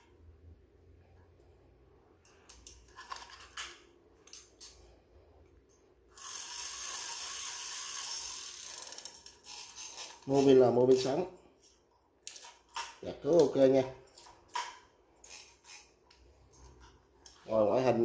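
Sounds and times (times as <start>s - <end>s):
fishing reel ratcheting: 6.1s - 11.2s, 15.2s - 16.0s.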